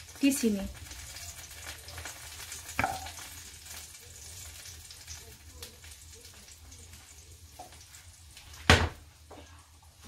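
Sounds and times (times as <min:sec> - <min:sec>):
wooden spoon knocking metal pot: 0:02.8 - 0:03.2.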